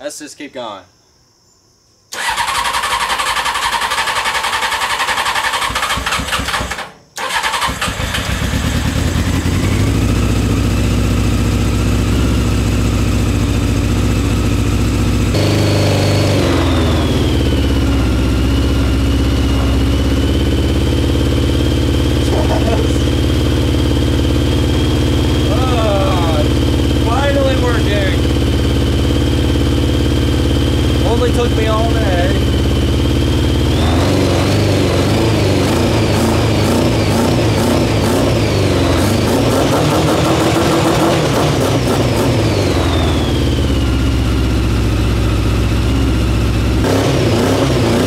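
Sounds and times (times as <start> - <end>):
motorcycle engine cranking: 2.1 - 10.3, 15.4 - 25.7
motorcycle engine idling: 2.2 - 39.4, 41.0 - 46.8.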